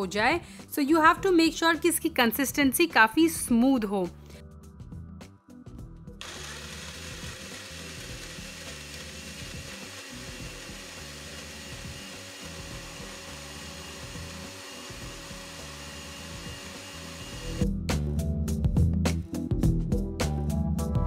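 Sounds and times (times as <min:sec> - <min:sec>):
blender motor running: 0:06.2 - 0:17.7.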